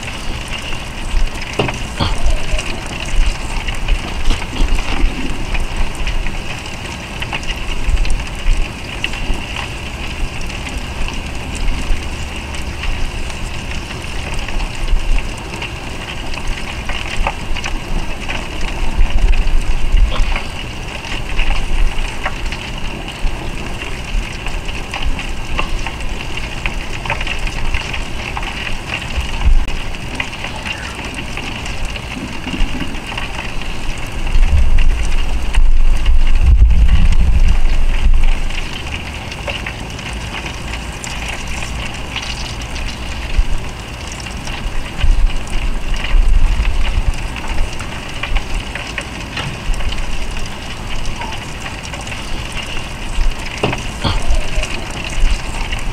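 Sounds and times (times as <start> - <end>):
fish sizzling in butter: 0.0 - 55.9
loud low rumble: 34.1 - 39.0.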